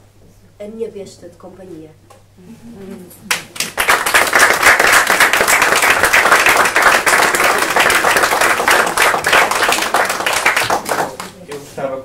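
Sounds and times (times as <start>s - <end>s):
audience applauding: 3.3s - 11.6s.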